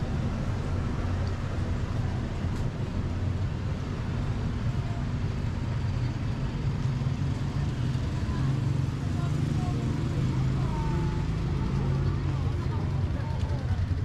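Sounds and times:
road noise: 0.0s - 14.0s
vehicle engine idling: 0.0s - 14.0s.

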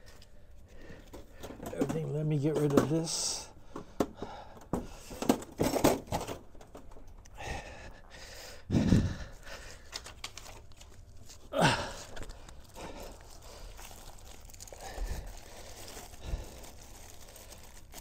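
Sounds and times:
case knocking down: 5.2s - 6.4s
plastic wrapping crinkling: 9.6s - 18.0s.

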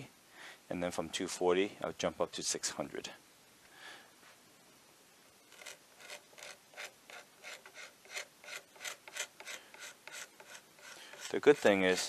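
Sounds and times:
steel scraper scraping wood: 5.5s - 12.0s.

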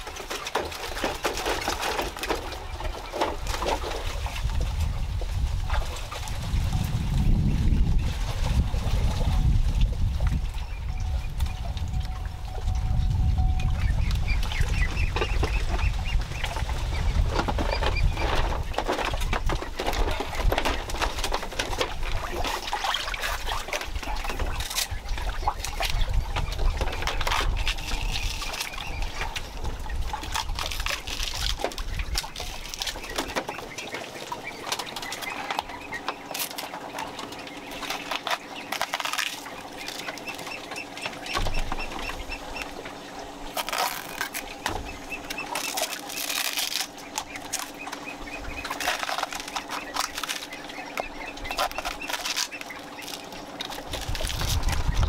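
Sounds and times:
bamboo baskets being handled: 0.0s - 55.0s
birds calling: 0.0s - 55.0s.

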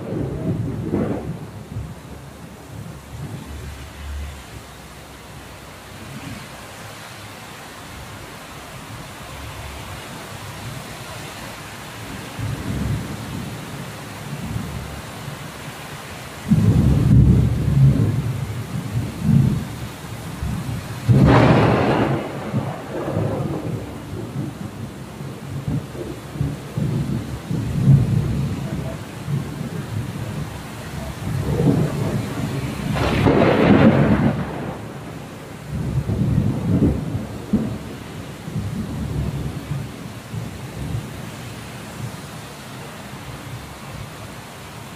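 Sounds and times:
thunder rumbling: 0.0s - 4.4s, 12.0s - 15.0s, 16.4s - 42.2s
steady rain hiss: 0.0s - 44.9s.

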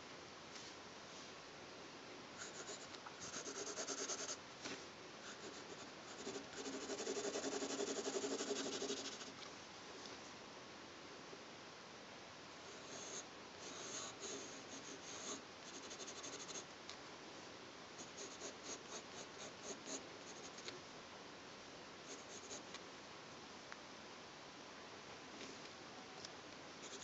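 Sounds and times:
pencil shading on paper: 2.4s - 4.4s, 5.3s - 9.3s, 12.8s - 16.6s.

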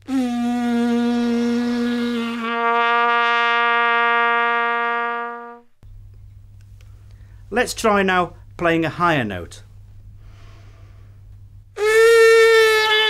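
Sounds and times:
plastic trumpet low note: 0.0s - 5.7s.

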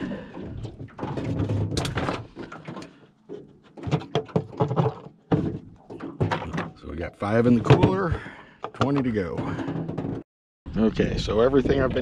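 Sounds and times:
plastic cooler lid clattering: 3.8s - 10.2s.

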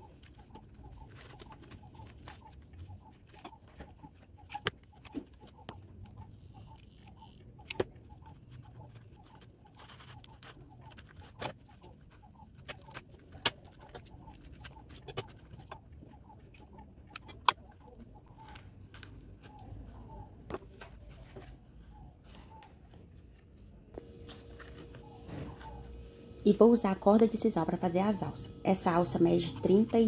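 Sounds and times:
scissors cutting rope: 12.6s - 15.1s.

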